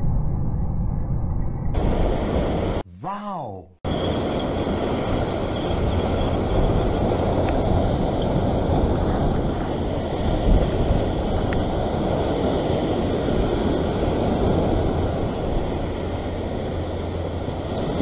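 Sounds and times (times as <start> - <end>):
wind buffeting microphone: 3.9 - 18.0
surf washing over rocks: 5.1 - 18.0.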